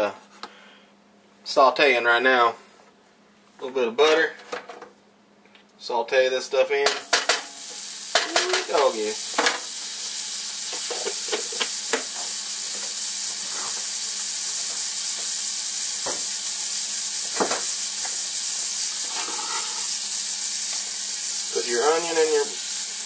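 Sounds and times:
butter sizzling in a skillet: 7.0 - 23.0.

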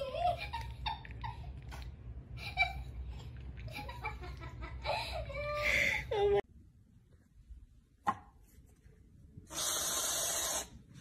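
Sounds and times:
person laughing: 3.7 - 6.4.

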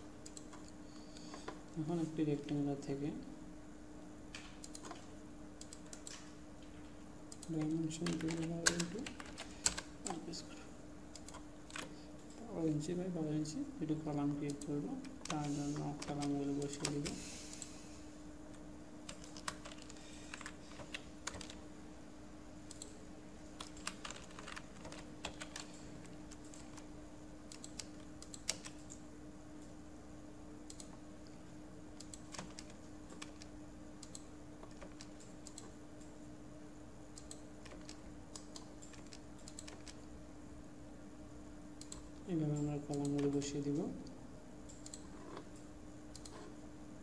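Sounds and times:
faint steady hum: 0.0 - 47.0
keyboard keystrokes: 19.1 - 21.6, 23.6 - 26.9, 32.0 - 35.7, 37.2 - 40.1.

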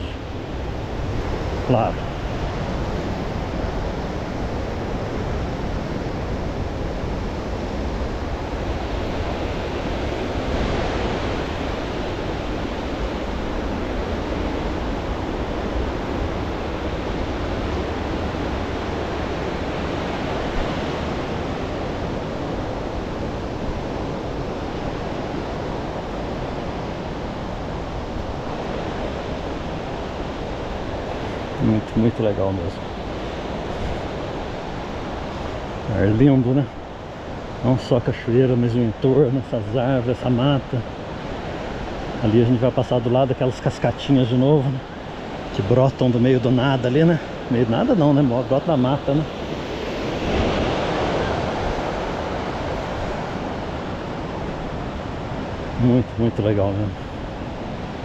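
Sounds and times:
waterfall rushing: 42.2 - 58.0.

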